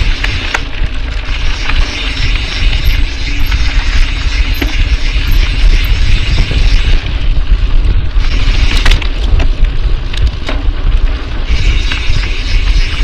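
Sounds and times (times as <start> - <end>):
wind buffeting microphone: 0.0 - 13.0
bike knocks and rattles: 7.6 - 13.0.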